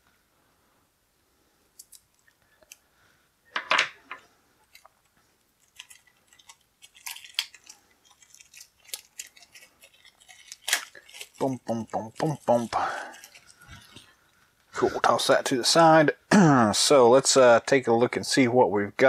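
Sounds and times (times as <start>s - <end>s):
plastic wrapping crinkling: 4.7s - 14.6s.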